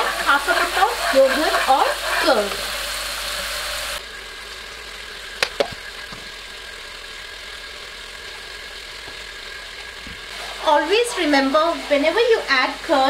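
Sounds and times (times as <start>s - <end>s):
spices sizzling in hot oil: 0.0s - 13.0s.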